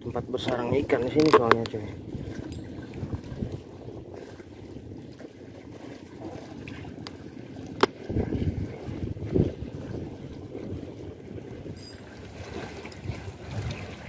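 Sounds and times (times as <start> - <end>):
water lapping against concrete: 0.0 - 14.0
wind buffeting microphone: 0.0 - 14.0.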